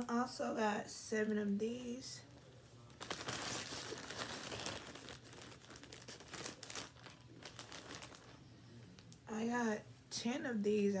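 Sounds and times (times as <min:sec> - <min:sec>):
plastic bag crinkling: 0:02.8 - 0:09.4.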